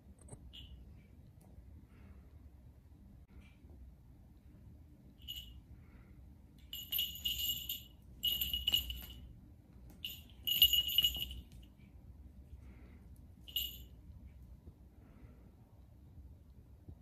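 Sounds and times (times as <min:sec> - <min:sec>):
cat collar bell jingling: 0:05.2 - 0:05.6, 0:06.6 - 0:09.3, 0:09.9 - 0:11.6, 0:13.4 - 0:14.0.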